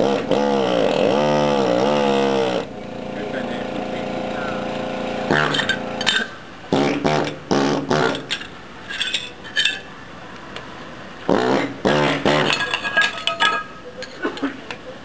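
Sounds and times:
air hammer chipping tile: 0:00.0 - 0:09.3, 0:11.3 - 0:13.8.

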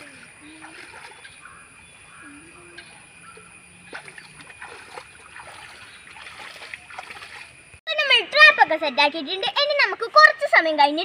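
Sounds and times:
small splashes: 0:00.0 - 0:01.5, 0:03.8 - 0:07.8
stream water trickling: 0:00.0 - 0:07.8.

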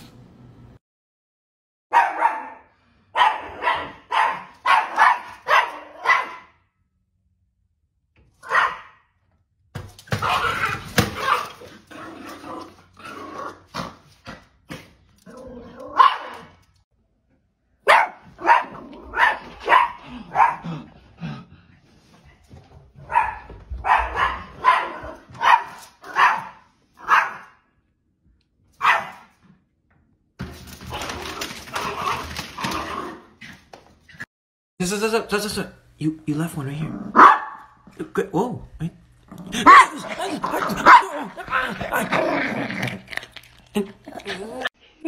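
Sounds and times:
small dog barking: 0:01.9 - 0:06.6, 0:08.4 - 0:09.0, 0:15.9 - 0:16.5, 0:17.8 - 0:20.7, 0:23.0 - 0:27.6, 0:28.8 - 0:29.3, 0:37.1 - 0:37.8, 0:39.6 - 0:41.6.

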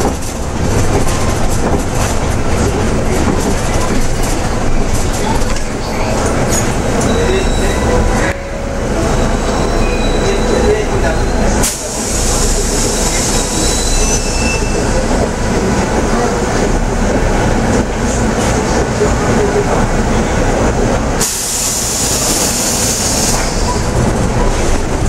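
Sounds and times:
bus engine running: 0:00.0 - 0:25.0
road and body rumble: 0:00.0 - 0:25.0
hiss: 0:21.2 - 0:23.6.

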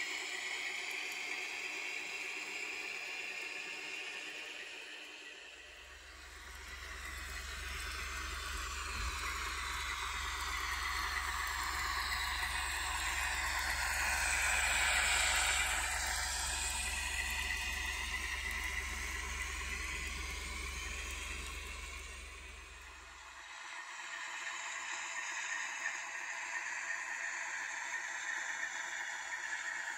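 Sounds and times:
model locomotive engine sound: 0:00.0 - 0:29.9
small wheels rolling on track: 0:06.1 - 0:22.8.

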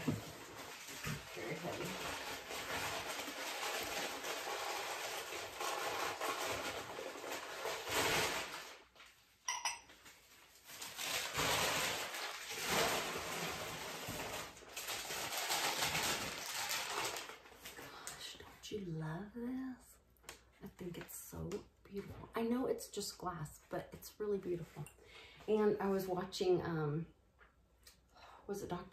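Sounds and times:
packing paper rustling: 0:00.0 - 0:09.2, 0:10.0 - 0:18.2
glass and dishes clinking: 0:09.5 - 0:09.9.

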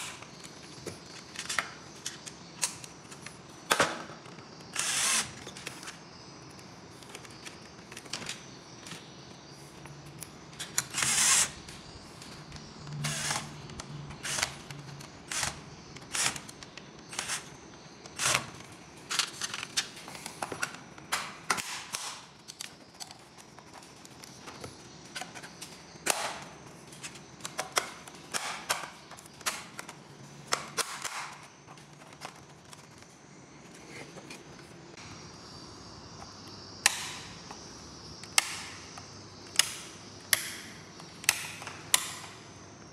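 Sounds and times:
cordless drill running: 0:04.8 - 0:05.3, 0:10.9 - 0:11.5, 0:14.2 - 0:14.5.

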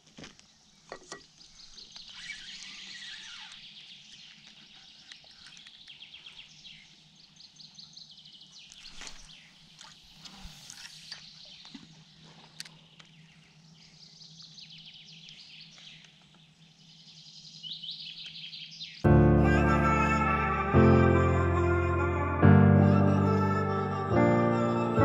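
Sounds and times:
small birds singing: 0:00.3 - 0:19.1.

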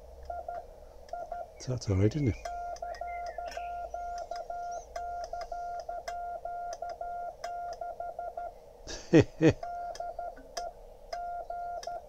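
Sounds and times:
morse code beeps: 0:00.3 - 0:08.5, 0:09.6 - 0:12.0
faint clicks: 0:02.4 - 0:07.9.

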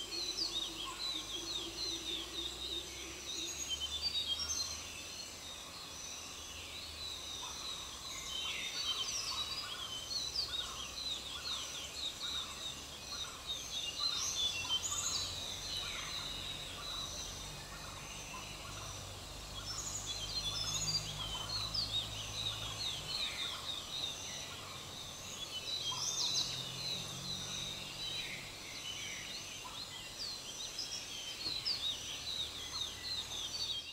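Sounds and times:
birds chirping and chattering: 0:00.0 - 0:33.9.

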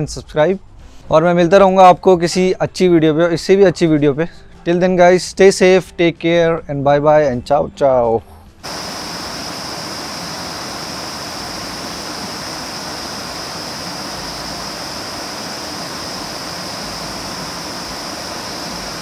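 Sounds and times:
high-pitched whine: 0:08.6 - 0:19.0
steady rushing noise: 0:08.6 - 0:19.0.

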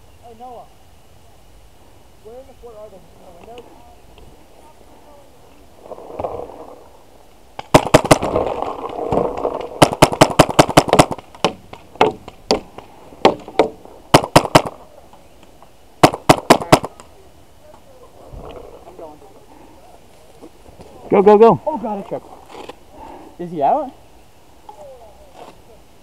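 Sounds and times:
paintball marker firing: 0:07.6 - 0:14.8, 0:16.0 - 0:17.1.

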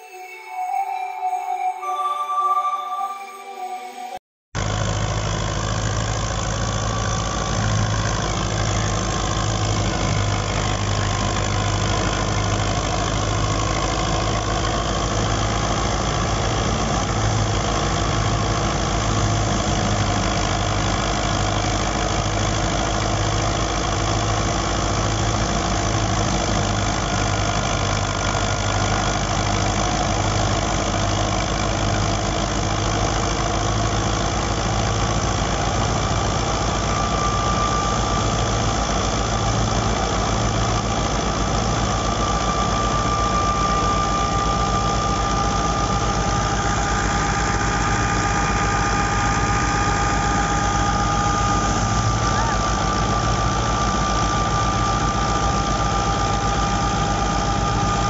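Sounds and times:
tractor diesel engine running: 0:04.6 - 0:58.0
thin steady whine: 0:35.6 - 0:58.0.

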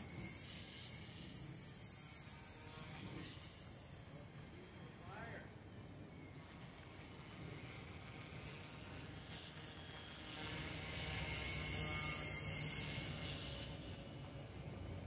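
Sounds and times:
toy helicopter buzzing whine: 0:00.0 - 0:15.0.

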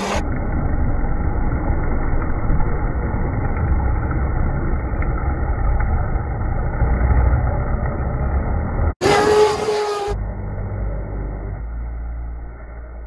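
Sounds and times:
rc speedboat motor whine: 0:06.9 - 0:13.0.

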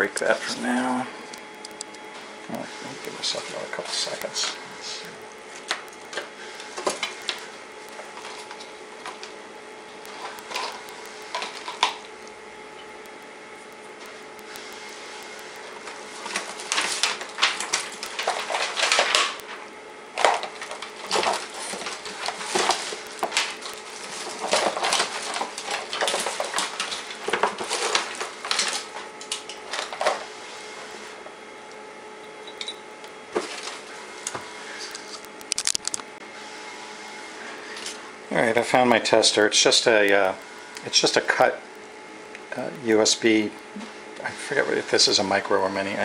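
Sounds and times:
steady background hum: 0:00.0 - 0:46.0
rummaging through hard objects: 0:16.2 - 0:19.6, 0:20.2 - 0:30.2.

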